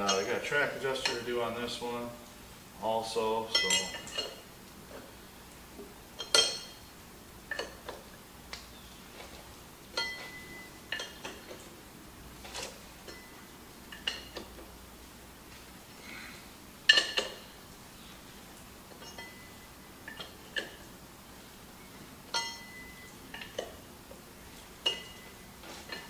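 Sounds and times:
wrench clinking on metal fittings: 3.5 - 4.4, 6.2 - 6.8, 10.0 - 11.4, 22.3 - 23.6.

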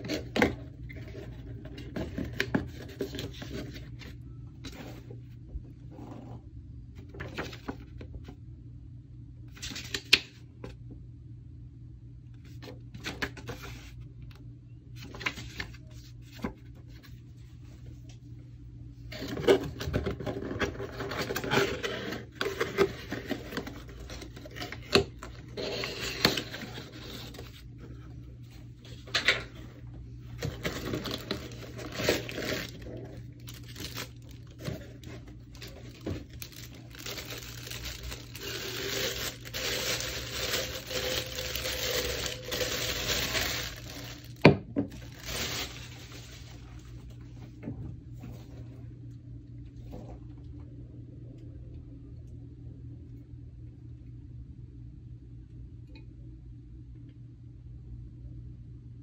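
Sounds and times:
plastic bag crinkling: 30.4 - 47.0
paper rustling: 30.4 - 47.1.

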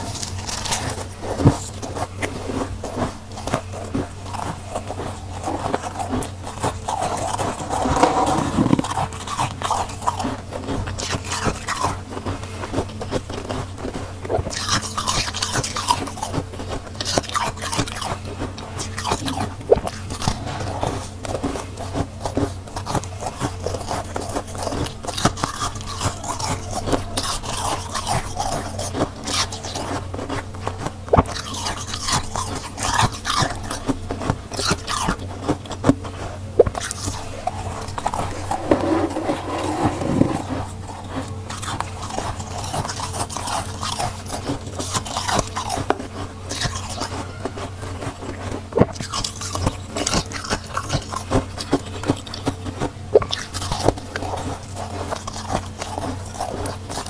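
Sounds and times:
crunchy chewing of frost: 0.0 - 57.0
steady low hum: 0.0 - 57.0
frost scraped off freezer walls: 36.8 - 42.6.

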